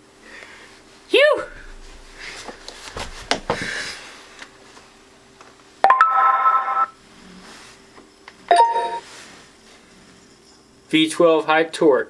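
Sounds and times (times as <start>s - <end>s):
thump of wheel set upright: 1.5s - 4.0s
electronic chime: 8.5s - 9.0s.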